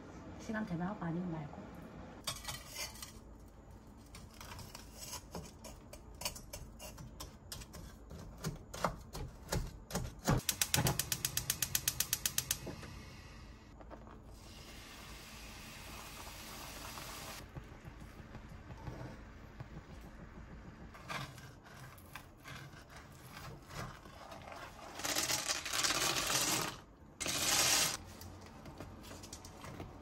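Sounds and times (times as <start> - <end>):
gas stove igniter ticking: 10.4 - 12.8
gas burner hissing: 10.4 - 21.0.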